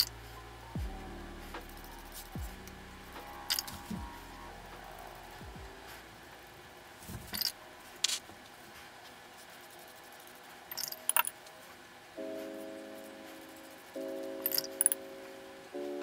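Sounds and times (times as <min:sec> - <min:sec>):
soft piano music: 0:09.4 - 0:16.0.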